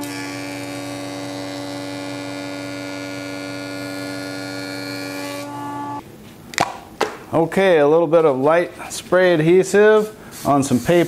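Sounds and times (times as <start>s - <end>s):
dust collector hum: 0.0s - 6.0s
jointer cutterhead planing wood: 0.0s - 6.0s.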